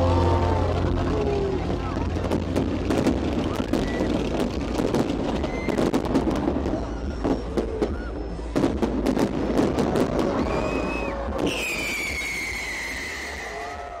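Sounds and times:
crowd noise: 0.0 - 14.0
fireworks bangs and crackles: 0.0 - 14.0
firework whistle: 3.5 - 14.0.

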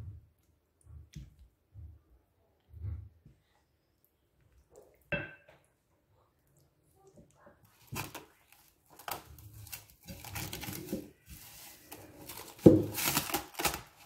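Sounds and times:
cling film crinkling: 7.7 - 14.0.

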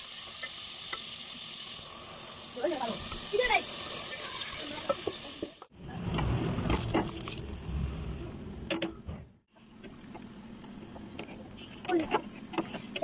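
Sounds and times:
chicken sizzling in a pot: 0.0 - 5.7
wooden spatula stirring: 10.9 - 13.0.

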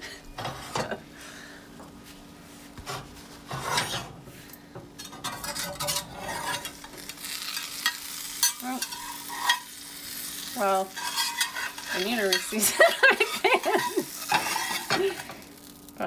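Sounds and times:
metal spatula scraping a pan: 2.9 - 4.2, 5.0 - 9.8, 10.6 - 15.4
omelet sizzling in a pan: 5.0 - 16.0.

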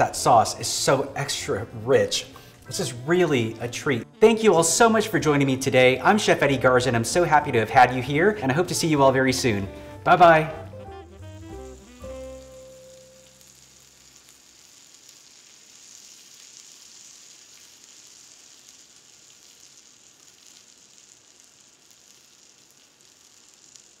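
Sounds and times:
music: 0.0 - 14.1
butter sizzling in a skillet: 11.1 - 24.0.

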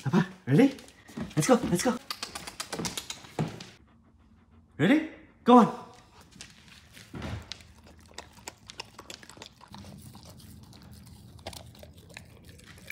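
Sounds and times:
dog chewing wetly: 6.0 - 12.9.

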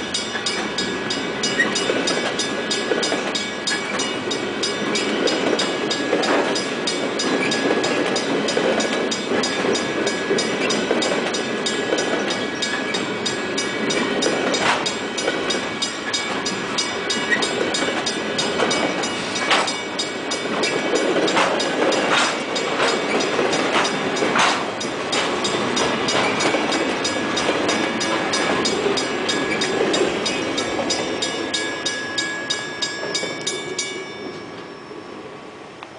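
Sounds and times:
train wheels clattering over rails: 0.0 - 32.0
crossing signal bell ringing: 0.0 - 35.6
sharp metal clanks: 21.3 - 26.6.

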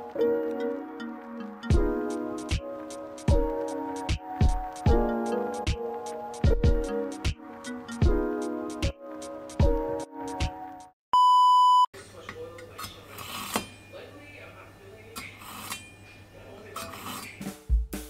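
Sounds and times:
background music: 0.0 - 10.9
knife scraping through sharpener: 12.8 - 13.8, 15.2 - 16.1, 16.8 - 17.4.

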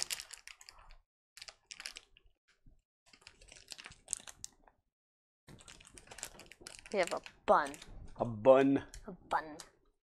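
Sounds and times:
plastic wrappers crinkling: 0.0 - 2.2, 3.1 - 4.6, 5.5 - 8.0.

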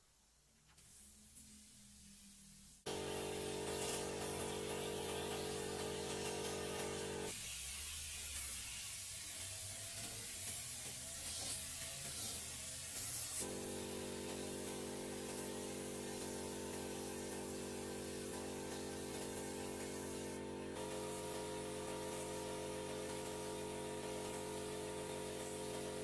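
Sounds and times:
paint spray gun hissing: 0.9 - 26.0
air compressor motor humming: 2.9 - 7.3, 13.4 - 26.0.

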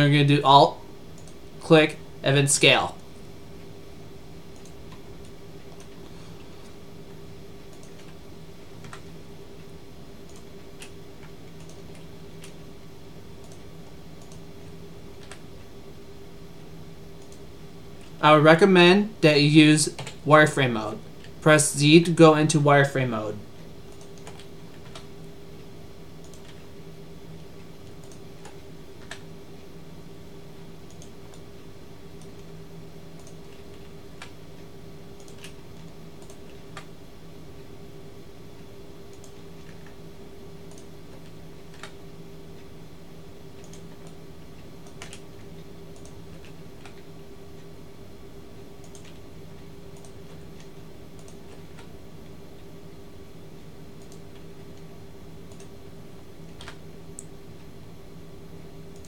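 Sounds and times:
steady low hum: 0.0 - 59.0
computer keys clicking: 1.1 - 1.4, 4.5 - 6.8, 7.7 - 8.2, 8.8 - 12.6, 13.4 - 15.7, 17.1 - 18.2, 19.8 - 20.2, 23.9 - 26.7, 27.4 - 29.4, 30.8 - 37.0, 38.5 - 40.0, 40.6 - 42.7, 43.5 - 47.8, 48.8 - 52.7, 53.9 - 55.8, 56.4 - 57.4
mouse clicks: 43.6 - 44.2, 48.8 - 49.2, 50.0 - 51.9.

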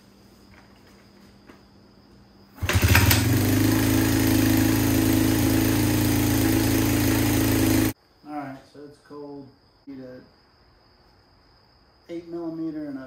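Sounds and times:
motorcycle engine kick-started: 2.6 - 8.0.

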